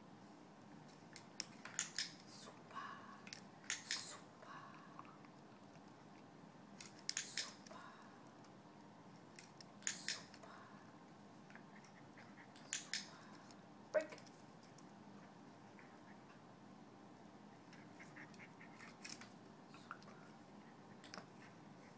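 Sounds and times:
short sharp clicks: 7.1 - 7.6, 9.8 - 10.4.

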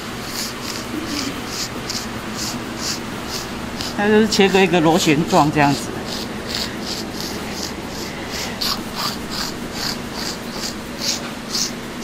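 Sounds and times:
blade cutting dough: 0.0 - 12.0.

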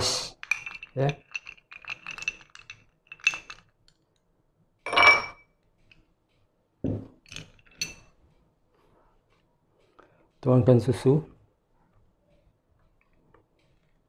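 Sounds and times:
teaspoon clinking against ceramic bowl: 0.4 - 3.6, 7.3 - 8.1.

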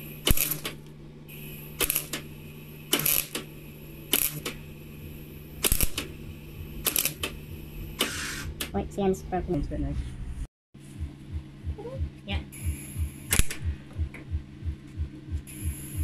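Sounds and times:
welder crackling tack welds: 0.0 - 8.8, 12.6 - 13.6
steady low hum: 0.0 - 16.0.

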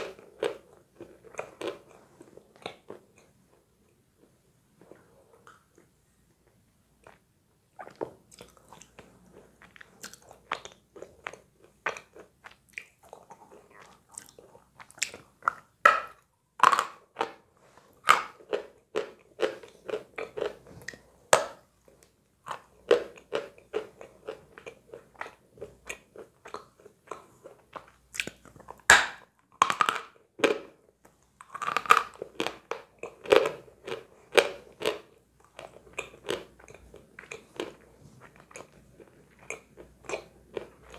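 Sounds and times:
quiet chewing: 0.0 - 15.8, 31.0 - 40.9.

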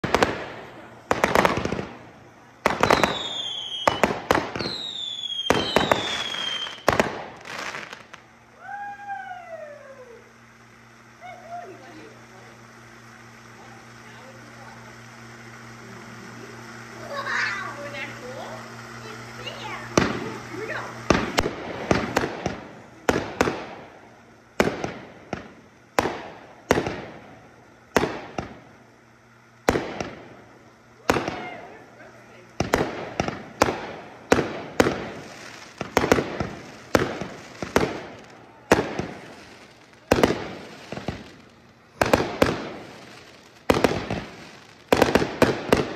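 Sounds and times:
firework bangs: 0.0 - 45.9
firework crackling: 0.0 - 45.9
firework whistles sliding down: 2.7 - 10.4.

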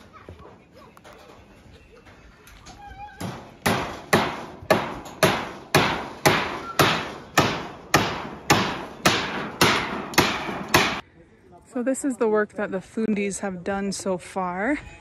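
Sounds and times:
hammer blows on metal roof: 3.2 - 11.0.

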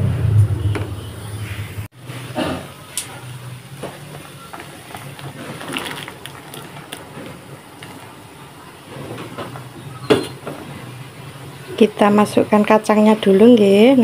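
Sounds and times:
water boiling in a pot: 2.0 - 14.0
beans splashing into water: 5.0 - 7.1.

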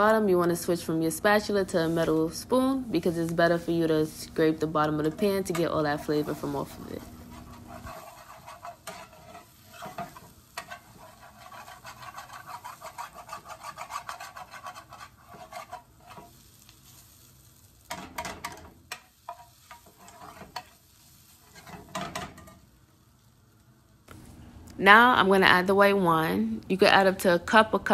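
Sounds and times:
onions sizzling: 0.0 - 26.4
metal spoon scraping skillet: 3.0 - 17.2, 17.8 - 22.6.

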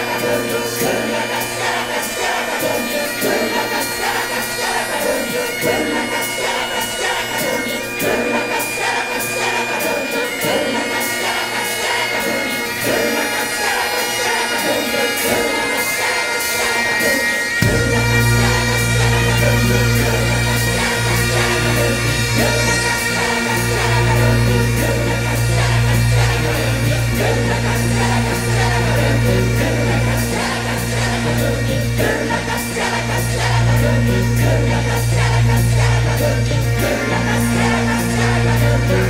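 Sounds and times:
bagpipes playing melody over drones: 0.0 - 39.0
loud low bass: 17.6 - 39.0.

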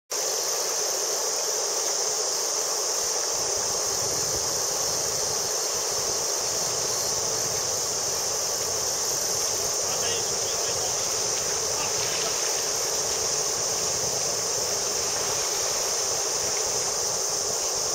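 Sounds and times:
insects chorus: 0.1 - 17.9
river water over gravel: 5.9 - 17.9.

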